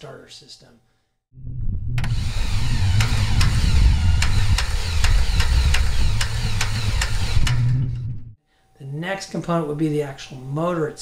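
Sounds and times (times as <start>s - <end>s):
engine cranking rumble: 1.5s - 8.4s
starter clicking: 2.0s - 8.1s.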